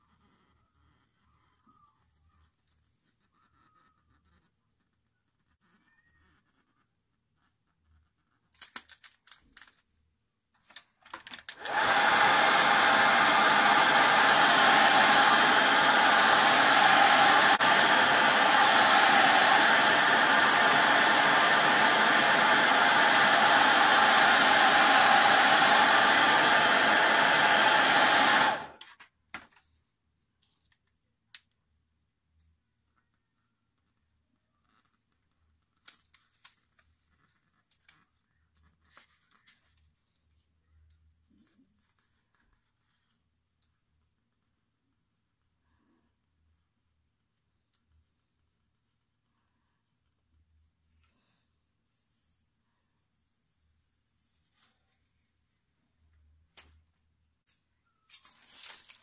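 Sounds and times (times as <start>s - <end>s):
hair dryer blowing: 11.5s - 28.8s.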